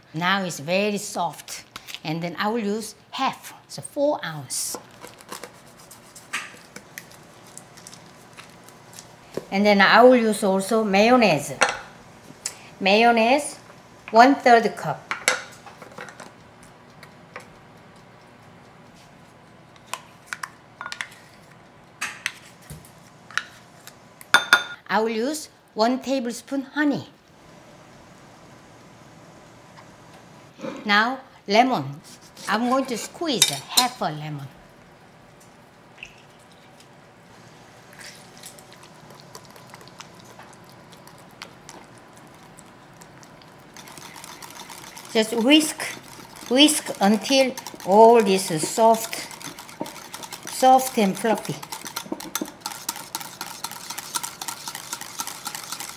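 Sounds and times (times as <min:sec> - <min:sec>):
whisk squelching thick mixture: 0:05.2 - 0:08.8, 0:38.0 - 0:55.9
utensils clicking against ceramic bowl: 0:43.8 - 0:55.9.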